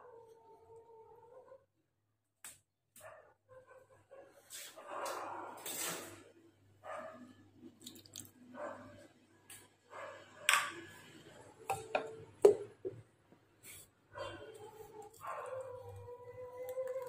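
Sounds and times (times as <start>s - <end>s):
plastic lid knock: 11.7s - 13.0s.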